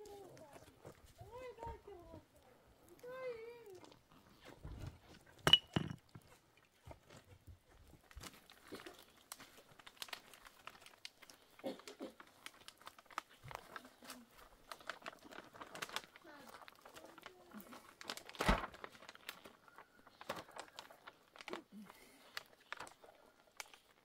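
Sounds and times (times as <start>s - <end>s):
plastic tarp crinkling: 8.0s - 24.0s
tarp sharp snap: 18.2s - 18.8s.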